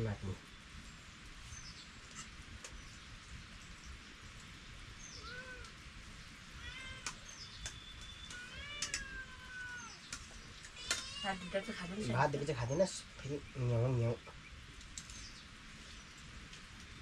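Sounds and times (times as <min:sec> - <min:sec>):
cat meowing: 0:05.2 - 0:05.7, 0:06.6 - 0:07.3, 0:08.3 - 0:10.0, 0:10.7 - 0:12.2.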